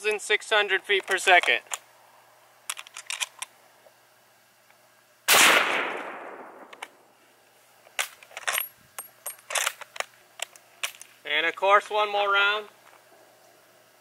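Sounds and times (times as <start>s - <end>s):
rifle handling clicks: 2.7s - 3.5s
rifle shot with long echo: 5.3s - 7.0s.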